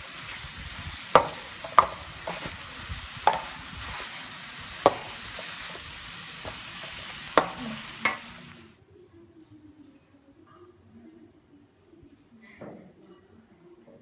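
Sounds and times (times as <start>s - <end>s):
spatula stirring food: 0.0s - 8.6s
noodles sizzling in a wok: 0.0s - 8.8s
faint room noise: 0.0s - 14.0s
spatula clanging on wok: 1.1s - 4.0s, 4.8s - 8.4s.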